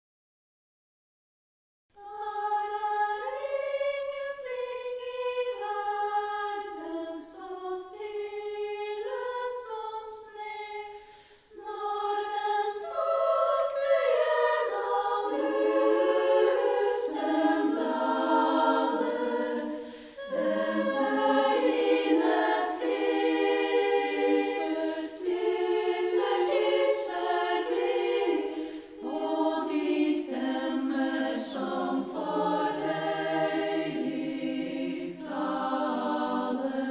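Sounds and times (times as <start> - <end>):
women's choir singing: 2.0 - 36.9
singers breathing: 10.9 - 11.6, 19.6 - 20.3, 24.7 - 25.3, 28.4 - 29.0.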